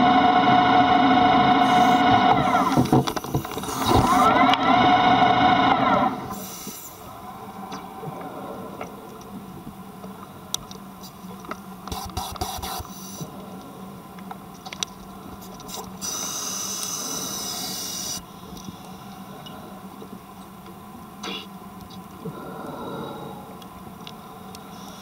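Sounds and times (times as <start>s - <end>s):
low steady hum: 0.0s - 25.0s
steady hiss: 6.3s - 14.1s, 15.1s - 19.8s.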